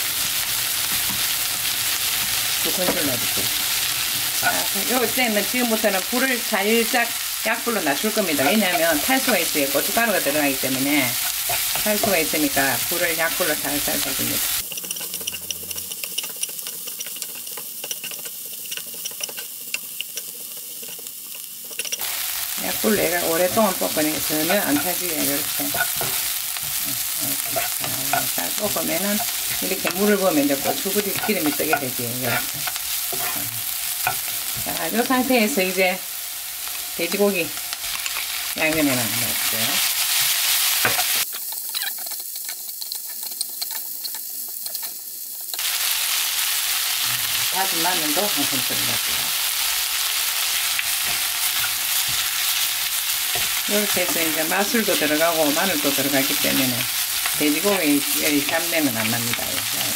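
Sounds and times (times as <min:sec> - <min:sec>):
food sizzling in oil: 0:00.0 - 0:59.9
spatula scraping and ticking: 0:08.1 - 0:35.1, 0:39.8 - 0:45.7, 0:49.0 - 0:59.9.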